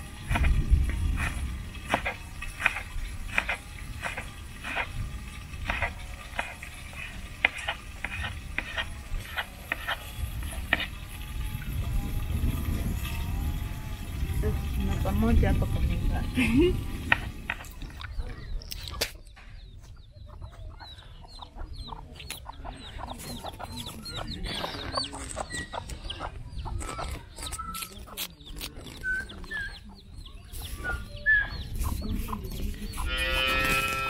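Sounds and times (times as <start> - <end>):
chickens clucking: 0.0 - 34.0
chicken calls: 17.1 - 34.0.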